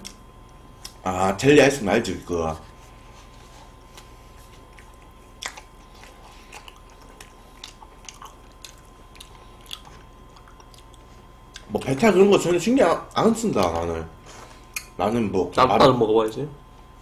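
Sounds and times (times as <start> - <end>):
biting and chewing cookies: 3.2 - 12.2.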